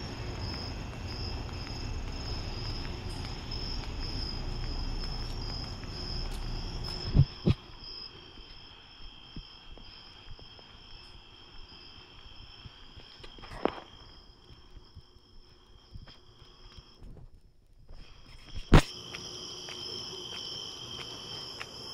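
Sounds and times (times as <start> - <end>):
faint ticks: 0.0 - 7.6
crickets chirping: 0.0 - 21.9.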